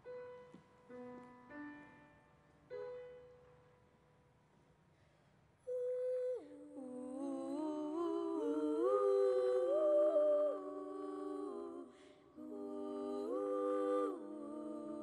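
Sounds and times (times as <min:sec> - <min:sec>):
girls singing in harmony: 0:05.7 - 0:15.0.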